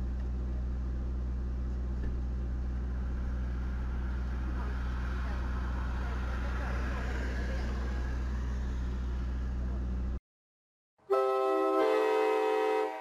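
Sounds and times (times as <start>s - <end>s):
car idling: 0.0s - 10.2s
train horn chord: 11.0s - 13.0s.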